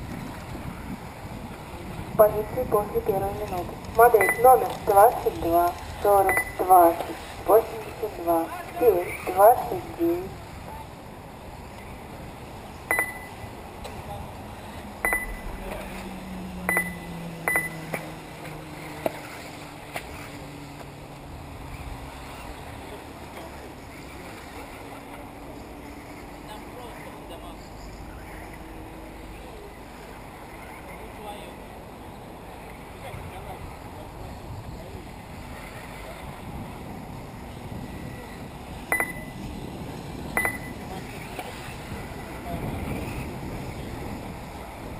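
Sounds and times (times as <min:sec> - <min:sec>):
brief high beep: 0:04.2 - 0:04.5, 0:06.3 - 0:06.6, 0:12.9 - 0:13.4, 0:15.0 - 0:15.5, 0:16.7 - 0:17.8, 0:38.9 - 0:39.4, 0:40.4 - 0:40.8
electronic chirp: 0:06.2 - 0:06.7, 0:12.9 - 0:13.4, 0:15.0 - 0:15.5, 0:16.7 - 0:17.8, 0:38.9 - 0:39.4, 0:40.4 - 0:40.8.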